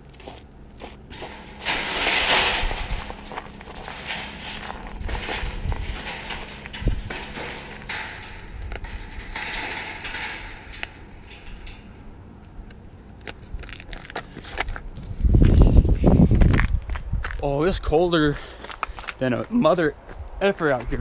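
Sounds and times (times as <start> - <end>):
footsteps crunching on icy snow: 0.0 - 1.2
metal gate knocks and clinks: 1.1 - 12.2
wind rumbling on microphone: 1.9 - 10.9, 13.4 - 19.0.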